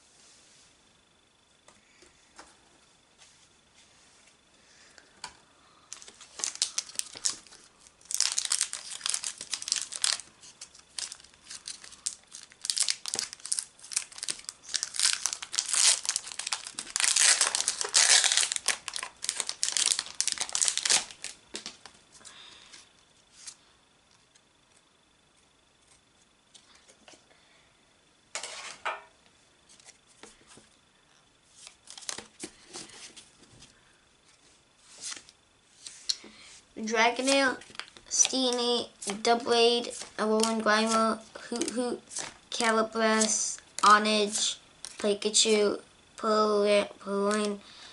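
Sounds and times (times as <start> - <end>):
foil wrapper crinkling and tearing: 5.9 - 21.9, 31.6 - 32.5, 37.2 - 45.1.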